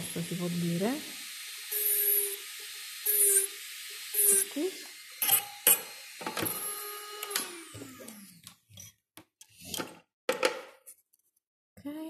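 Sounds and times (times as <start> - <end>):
electric nail drill whining: 0.0 - 8.8.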